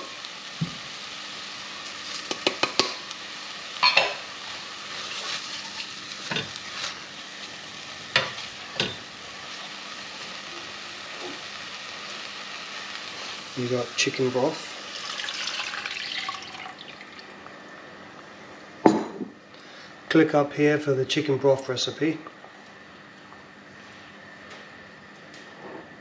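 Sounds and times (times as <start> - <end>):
paste sizzling: 4.3 - 17.0.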